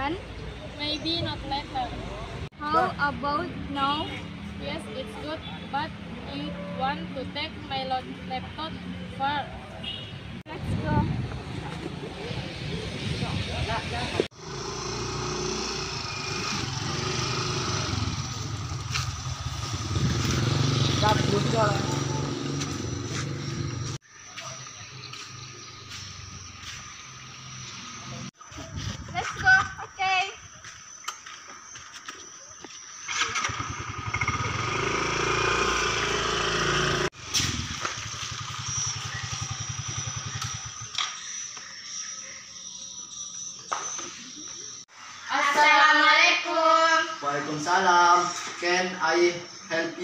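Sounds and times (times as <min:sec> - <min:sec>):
scooter engine: 0:14.2 - 0:24.0, 0:33.0 - 0:41.6
small motorcycle engine idling: 0:33.0 - 0:43.5.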